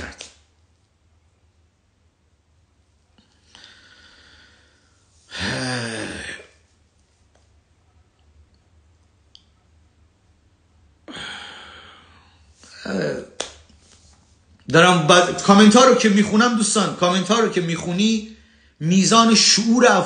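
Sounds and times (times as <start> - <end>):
man breathing: 3.2 - 6.5, 11.0 - 12.8
man sighing: 5.3 - 6.6, 11.0 - 12.9.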